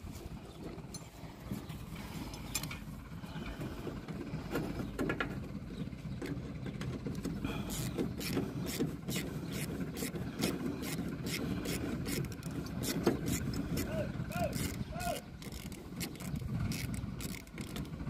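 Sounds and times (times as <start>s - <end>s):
steady low hum: 0.0s - 18.0s
metal parts clicking and clanking: 6.2s - 18.0s.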